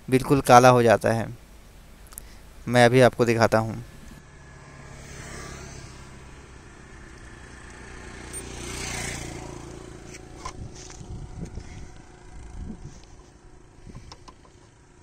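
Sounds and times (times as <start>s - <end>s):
motorcycle passing: 3.7s - 15.0s.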